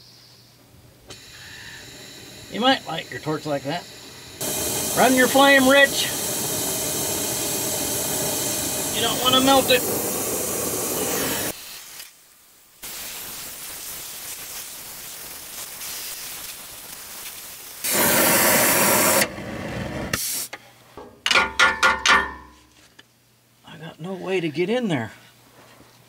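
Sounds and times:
gas torch hissing: 1.1 - 12.1, 12.8 - 20.5
metallic knocks on pipe: 21.0 - 22.6.

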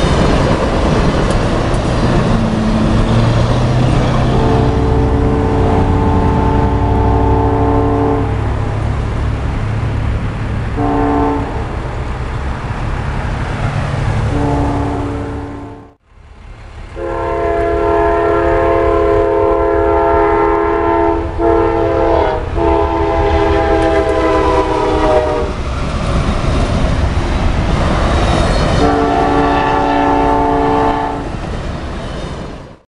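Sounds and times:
passing train rumble: 0.0 - 32.8
train air horn blasts: 3.1 - 8.6, 10.8 - 11.8, 14.3 - 16.0, 17.0 - 25.6, 28.8 - 31.3.

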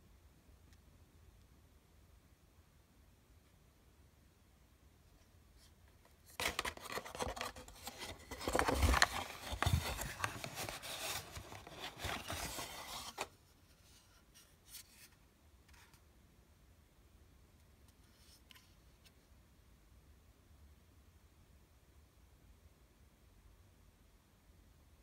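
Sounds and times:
plastic and cardboard packaging rustling: 6.2 - 13.4.

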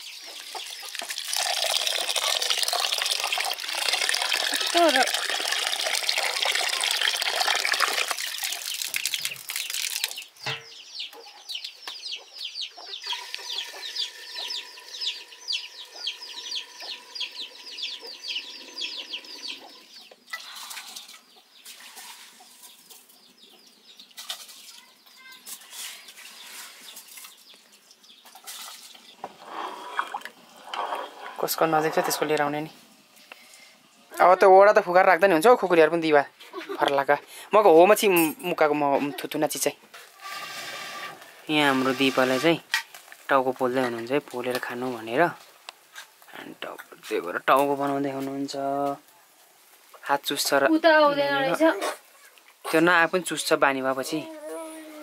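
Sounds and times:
tap water running into metal pot: 0.9 - 10.2
bird chirping: 8.5 - 32.1.

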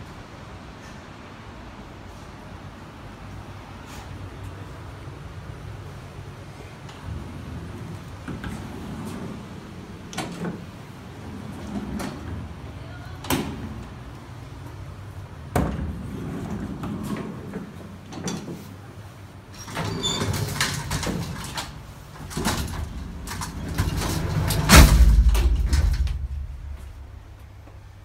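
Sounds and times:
elevator knocks and rattles: 15.4 - 18.6, 19.6 - 27.4
loud elevator clunk: 22.2 - 27.2.

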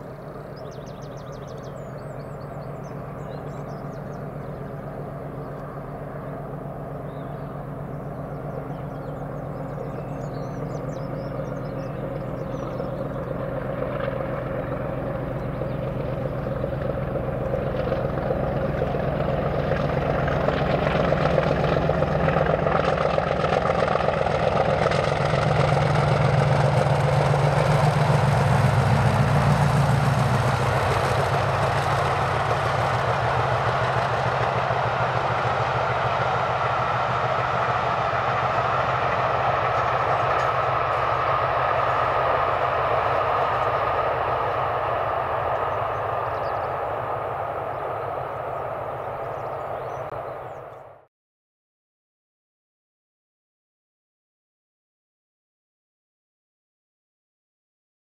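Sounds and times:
diesel locomotive engine rumble: 0.0 - 51.1
train wheels on rails: 16.1 - 50.6.

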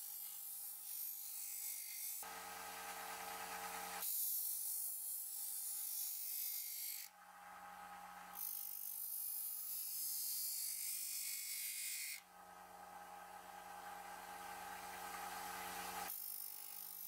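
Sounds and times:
sander motor hum: 2.2 - 4.0, 12.2 - 16.1.

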